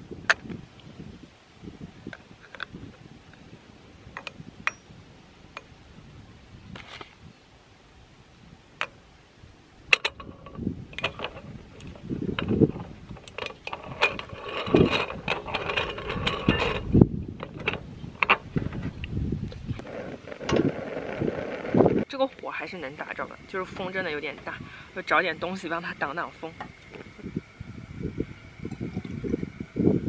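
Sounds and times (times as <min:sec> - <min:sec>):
scraping metal clicks: 0:09.9 - 0:19.1.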